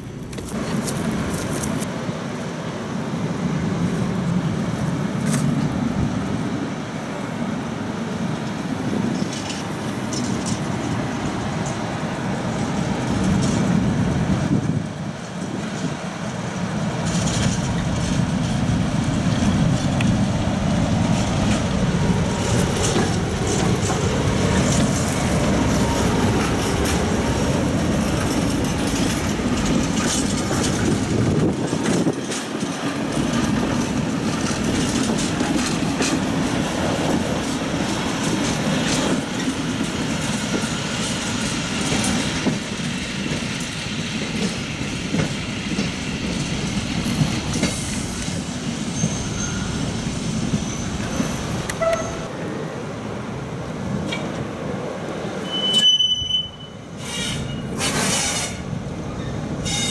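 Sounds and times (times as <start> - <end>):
diesel locomotive engine droning: 0.0 - 59.9
train wheels clicking over rail joints: 8.4 - 52.3, 56.9 - 59.9.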